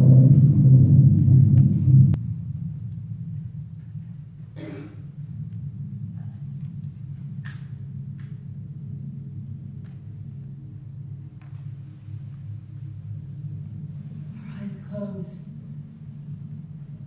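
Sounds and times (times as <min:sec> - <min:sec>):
low rumble of room tone: 0:00.0 - 0:17.0.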